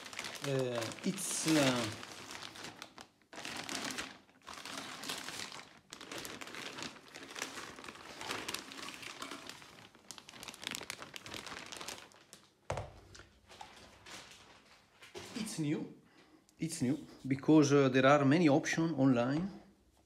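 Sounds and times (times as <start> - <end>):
plastic wrap crinkling: 0.0 - 15.6.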